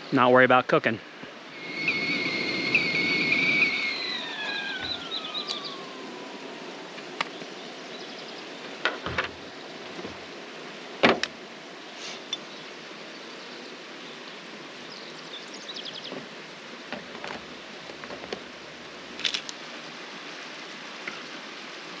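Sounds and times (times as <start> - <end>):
kettle whistling: 1.5 - 7.4.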